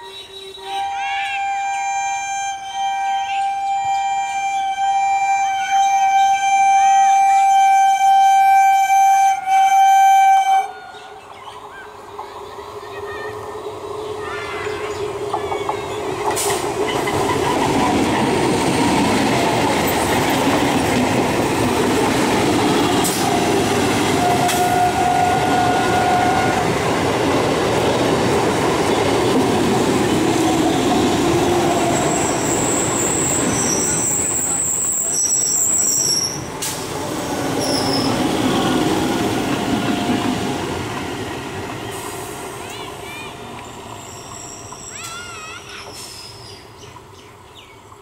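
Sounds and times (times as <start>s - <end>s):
train wheels rumbling on rails: 11.2s - 48.0s
wheel squeals: 30.7s - 36.5s, 37.6s - 38.8s, 43.9s - 46.4s.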